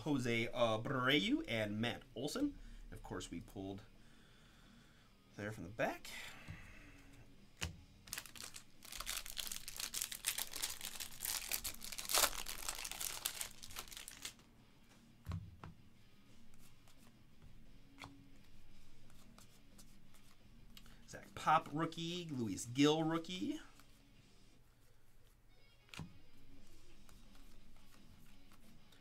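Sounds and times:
handling of cards: 7.6 - 15.8, 16.4 - 22.3, 24.7 - 29.0
foil wrapper tearing and crinkling: 8.1 - 14.4.

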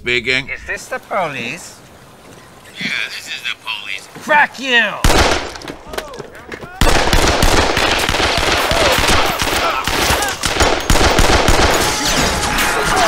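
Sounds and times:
rapid machine-gun fire: 5.1 - 5.6, 6.8 - 12.0.

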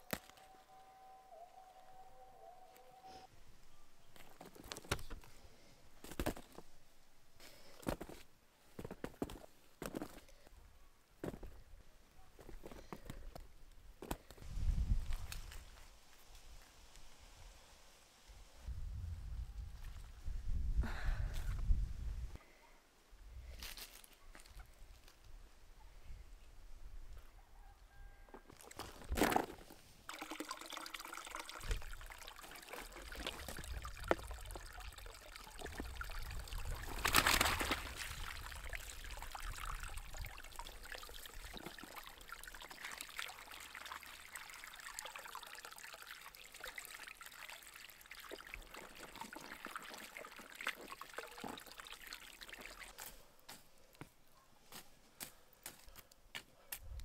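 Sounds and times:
water pouring and trickling: 28.6 - 53.1.

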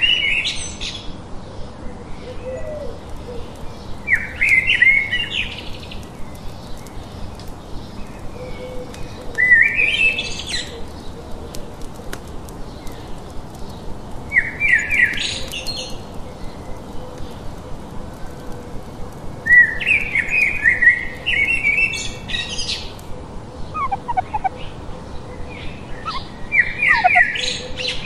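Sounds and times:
songbird whistling: 23.8 - 24.5, 26.0 - 27.4.

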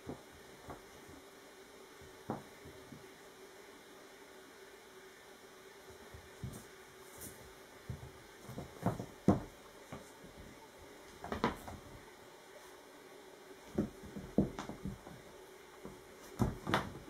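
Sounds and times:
kittens thumping on wooden floor: 7.9 - 12.0, 13.7 - 17.0.

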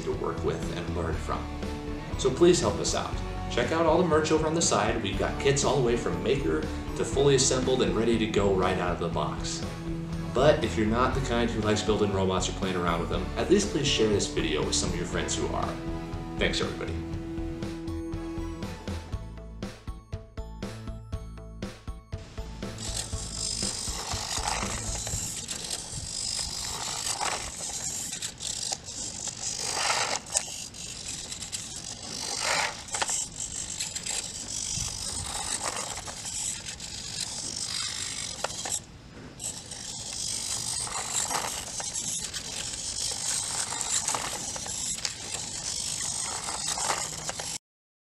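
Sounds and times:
plastic legs scraping on concrete: 2.2 - 6.0, 22.7 - 47.6
servo motors whirring: 22.6 - 47.6.

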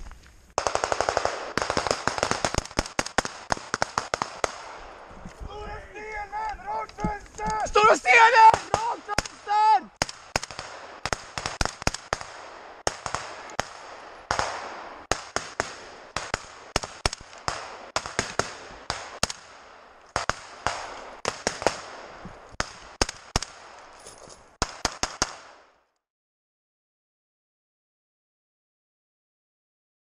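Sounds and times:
rifle shots echoing: 0.6 - 5.3, 6.0 - 24.0, 24.6 - 25.8.

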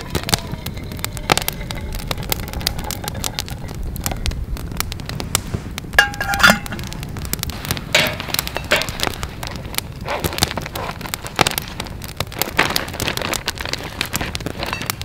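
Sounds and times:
campfire crackling and popping: 0.0 - 15.0
metallic clink: 6.0 - 6.8.

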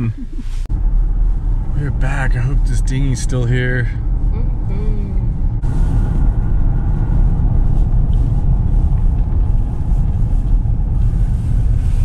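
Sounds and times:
engine and tyre rumble: 0.0 - 12.0.

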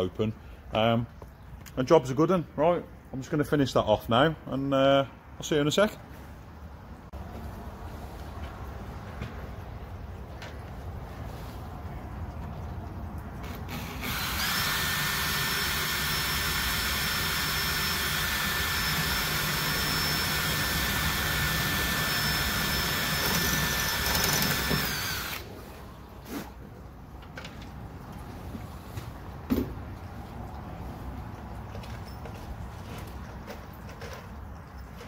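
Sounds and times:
cordless drill whining: 13.4 - 25.5.

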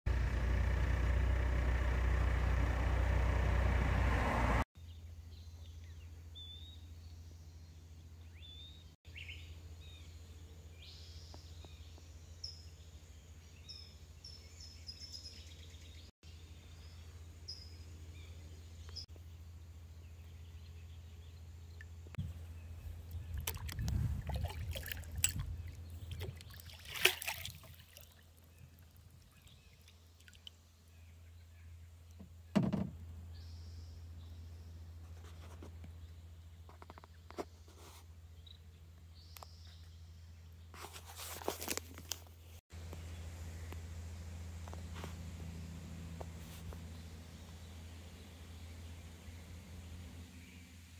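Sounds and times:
low steady hum: 0.1 - 40.7, 42.7 - 50.9
small birds chirping: 4.8 - 32.6, 33.2 - 50.9
kayak paddle splashing water: 23.1 - 30.5.

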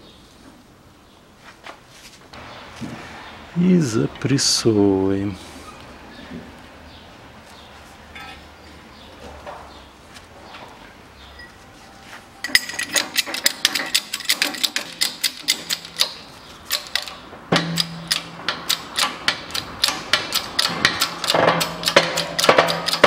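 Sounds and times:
metallic clicks and creaks: 12.4 - 23.0.

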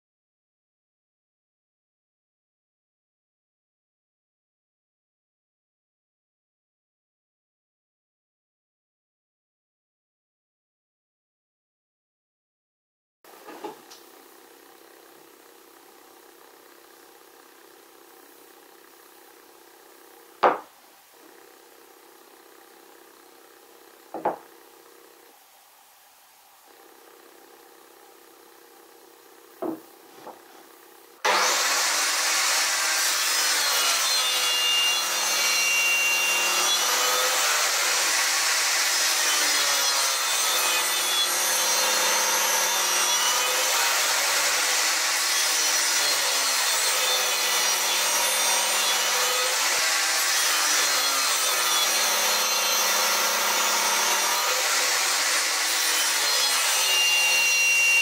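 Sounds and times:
table saw cutting wood: 13.3 - 25.4, 29.6 - 58.0.

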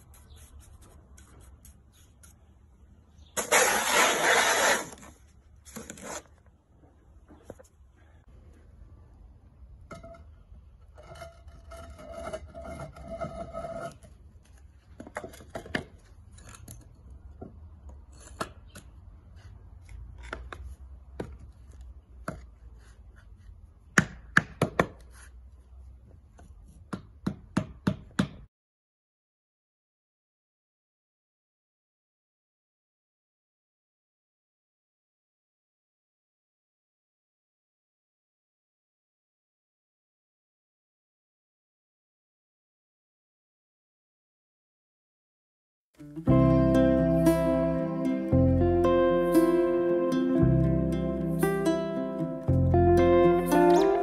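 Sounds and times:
mortar scraping: 3.3 - 6.4, 10.0 - 16.8
sharp taps on concrete kerb: 23.9 - 25.1.

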